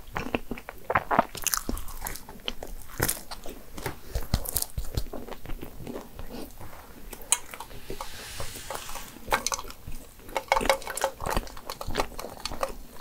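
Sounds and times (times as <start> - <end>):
sipping through a straw: 6.6 - 9.8.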